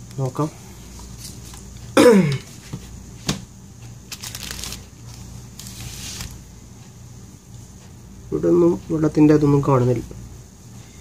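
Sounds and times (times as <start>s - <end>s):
rustling sliding noise: 0.9s - 1.9s, 4.1s - 6.4s.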